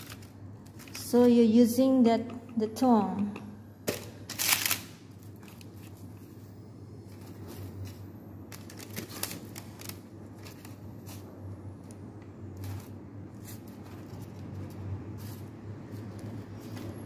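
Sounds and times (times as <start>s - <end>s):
parchment paper rustling: 0.0s - 1.5s, 4.3s - 17.0s.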